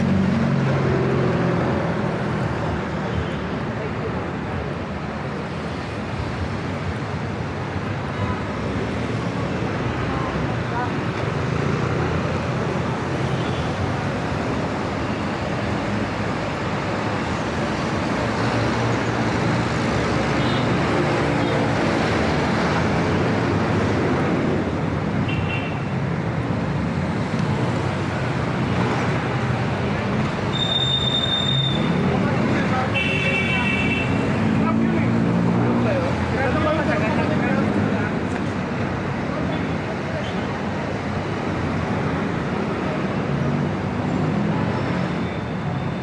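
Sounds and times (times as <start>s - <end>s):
motorcycles passing: 0.0s - 2.9s, 31.5s - 45.8s
cars passing: 0.0s - 46.0s
traffic engines rumbling: 0.0s - 46.0s.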